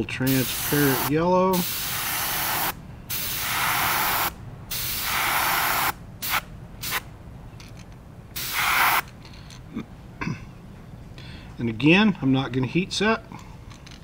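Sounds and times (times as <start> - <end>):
airbrush spraying paint: 0.3 - 7.0, 8.4 - 9.1.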